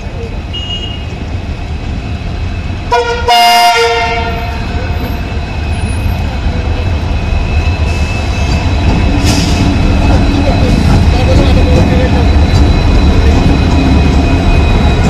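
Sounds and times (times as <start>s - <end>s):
locomotive horn blast: 2.9s - 5.0s.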